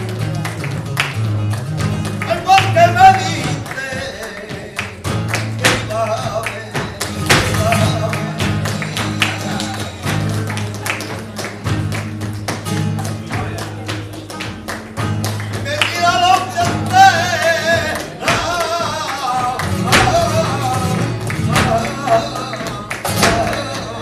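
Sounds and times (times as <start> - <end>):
guitar strumming and plucking: 0.0 - 24.0
rhythmic handclaps: 0.0 - 24.0
person singing: 15.6 - 24.0.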